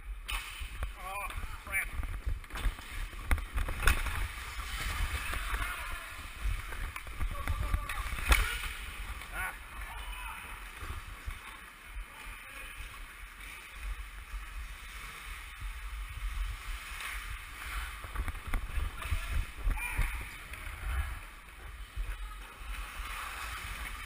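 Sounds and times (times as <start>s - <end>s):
skates scraping on ice: 2.1s - 11.9s.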